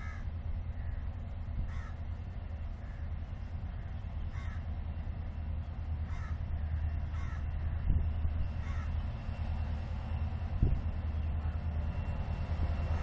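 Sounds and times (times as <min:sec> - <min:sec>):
crows cawing: 0:00.0 - 0:01.0, 0:01.7 - 0:02.0, 0:02.8 - 0:03.1, 0:03.8 - 0:04.7, 0:06.0 - 0:07.8, 0:08.6 - 0:09.0.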